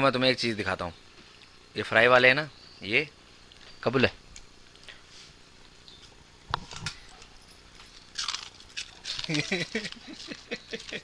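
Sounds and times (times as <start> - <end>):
dog crunching snack: 6.6 - 11.0.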